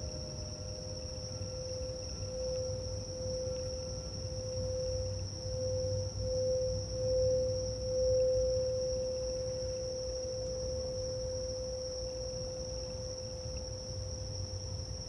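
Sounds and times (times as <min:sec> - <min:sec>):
singing bowl ringing: 0:00.0 - 0:13.4
crickets trilling: 0:00.0 - 0:15.0.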